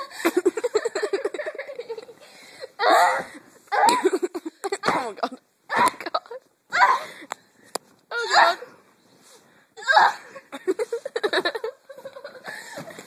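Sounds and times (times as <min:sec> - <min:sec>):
girl crying out: 0:06.7 - 0:07.1, 0:09.8 - 0:10.3.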